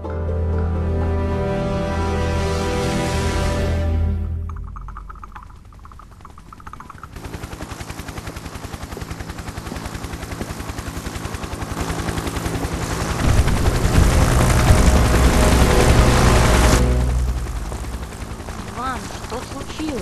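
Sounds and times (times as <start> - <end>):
helicopter rotor beating: 0.8 - 20.0
heavy engine rumble: 12.6 - 20.0.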